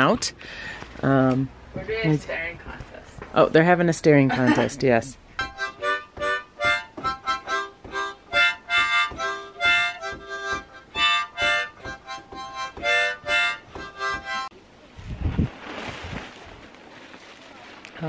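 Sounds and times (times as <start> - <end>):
harmonica rhythmic chords: 5.3 - 14.5
wind buffeting microphone: 15.0 - 16.6.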